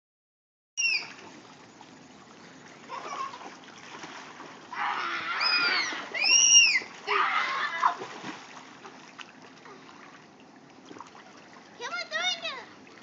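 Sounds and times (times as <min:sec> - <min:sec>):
child squealing: 0:00.8 - 0:01.2, 0:04.8 - 0:08.0
water splashing in pool: 0:00.8 - 0:13.0.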